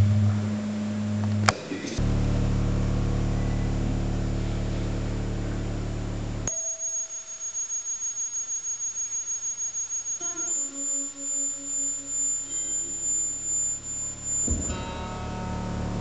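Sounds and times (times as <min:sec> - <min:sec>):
electronic low drone chord: 0:00.0 - 0:06.5, 0:10.2 - 0:16.0
pulsing tone: 0:06.4 - 0:16.0
thin high steady tone: 0:06.5 - 0:15.8.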